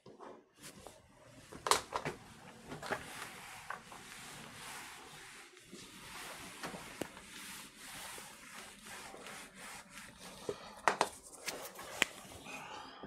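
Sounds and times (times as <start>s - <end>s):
eraser rubbing on whiteboard: 3.0s - 10.6s.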